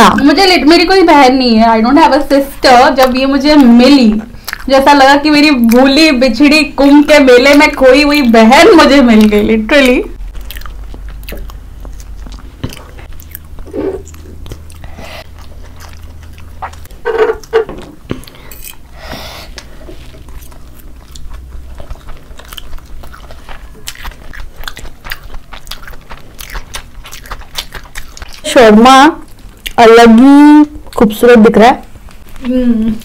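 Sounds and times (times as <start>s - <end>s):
people biting and chewing: 4.2s - 4.8s, 9.1s - 28.5s, 29.2s - 29.8s
wet mouth smacks and clicks: 4.4s - 4.7s.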